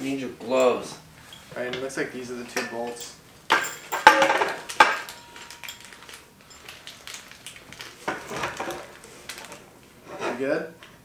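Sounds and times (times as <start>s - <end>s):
metal clank: 2.5s - 6.1s
small parts clicking and rustling: 2.7s - 9.7s.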